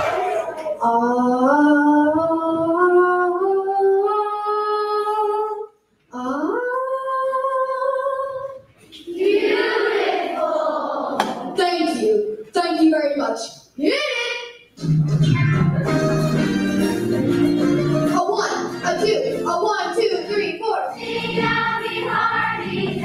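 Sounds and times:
children's choir singing: 0.0s - 5.6s, 6.2s - 11.6s, 20.9s - 23.0s.

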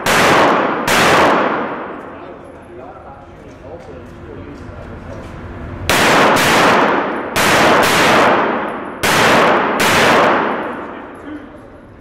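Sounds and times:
gunshots echoing indoors: 0.0s - 2.4s, 5.8s - 11.6s.

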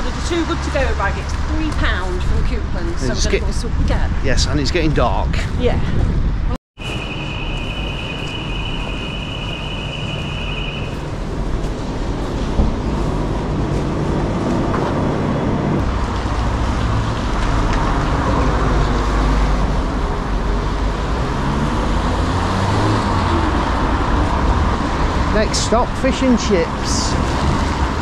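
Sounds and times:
motor vehicles passing on street: 0.0s - 28.0s
steady high beep: 6.8s - 11.1s.

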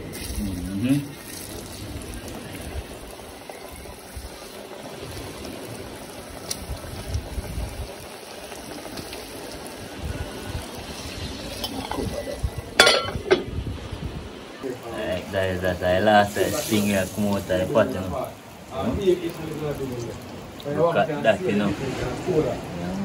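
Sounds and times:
frying in hot oil: 0.0s - 22.9s
metal lid clanking on pot: 11.6s - 12.2s, 12.8s - 13.5s.

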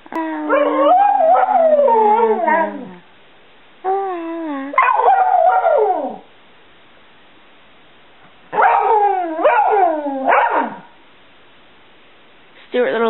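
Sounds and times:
dog howling: 0.2s - 3.0s, 3.9s - 6.3s, 8.5s - 10.9s.

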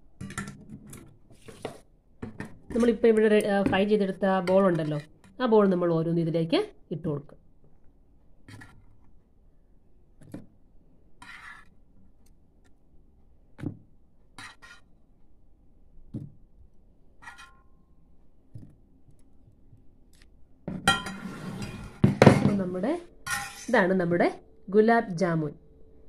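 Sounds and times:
utensils clattering: 23.2s - 23.8s.

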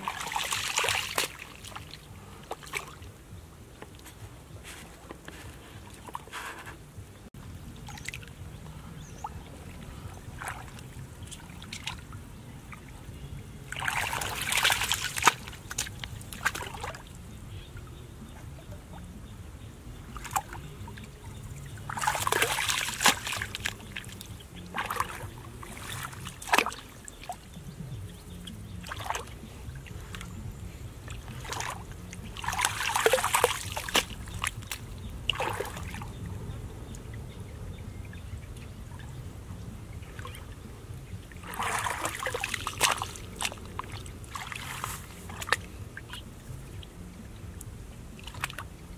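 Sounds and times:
splashes and slaps of mud: 0.0s - 1.9s, 13.8s - 17.0s, 21.9s - 26.9s, 31.1s - 36.0s, 41.4s - 46.2s, 48.2s - 48.7s
hands sloshing through muddy water: 0.0s - 3.1s, 9.2s - 12.9s, 13.7s - 17.1s, 20.1s - 27.6s, 28.2s - 36.2s, 41.3s - 47.0s, 48.1s - 48.7s.

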